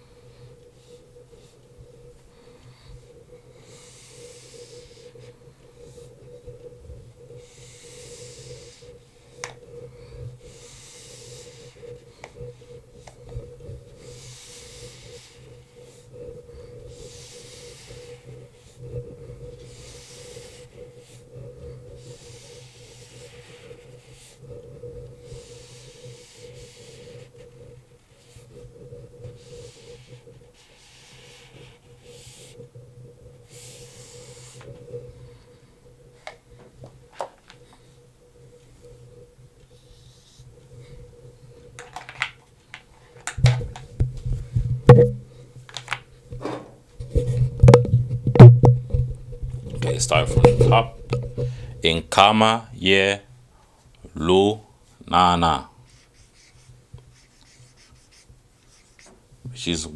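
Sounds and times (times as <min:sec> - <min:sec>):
low electrical hum: 0:00.0 - 0:59.9
eraser swishing on whiteboard: 0:19.7 - 0:21.3, 0:29.3 - 0:32.6, 0:33.5 - 0:34.7, 0:55.9 - 0:59.2.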